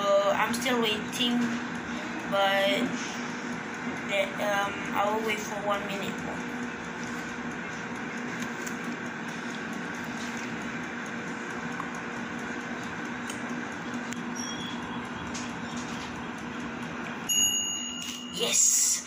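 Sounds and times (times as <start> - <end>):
air fryer fan hum: 0.0 - 19.0
high electronic timer beep: 14.2 - 15.6.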